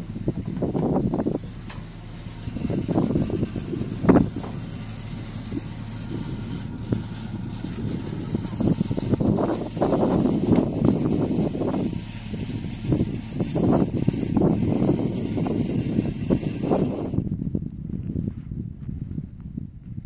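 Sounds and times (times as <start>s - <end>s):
pickup truck engine idling: 0.0s - 18.0s.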